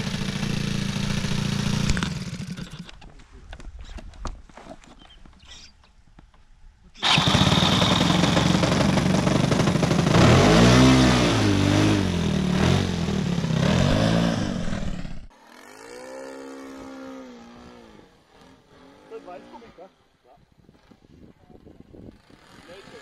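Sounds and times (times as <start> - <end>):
model airplane engine revving: 0.0 - 2.9, 7.0 - 19.8, 22.1 - 23.0
faint model plane engine in flight: 7.0 - 9.6, 14.5 - 23.0.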